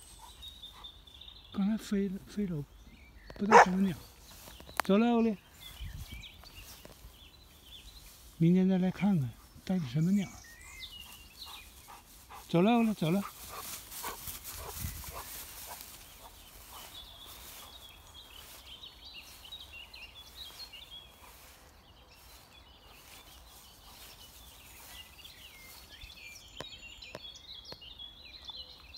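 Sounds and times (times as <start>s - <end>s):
songbirds chirping: 0.0s - 28.9s
dog running through grass: 10.4s - 25.9s.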